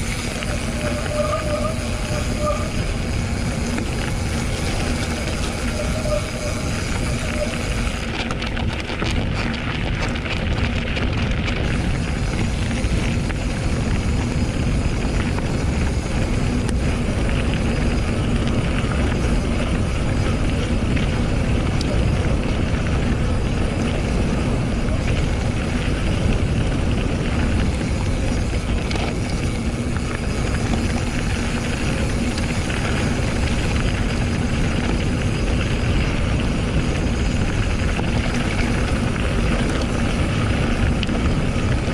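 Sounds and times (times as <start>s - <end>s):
mountain bike rumbling over trail: 0.0s - 41.9s
wind on microphone: 0.0s - 41.9s.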